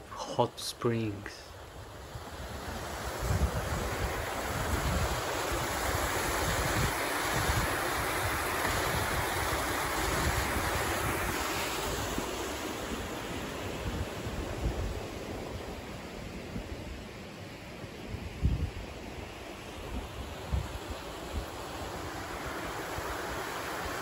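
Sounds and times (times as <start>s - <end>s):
water rushing down channel: 1.9s - 15.9s, 19.6s - 24.0s.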